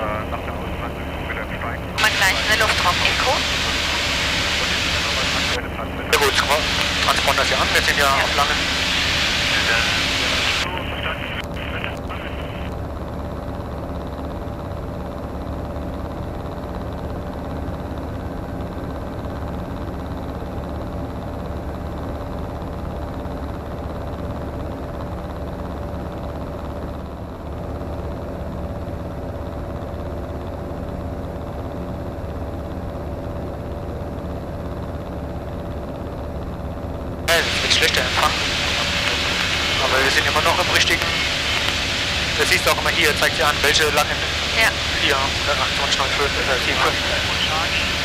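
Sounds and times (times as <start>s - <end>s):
light aircraft engine droning: 0.0s - 48.0s.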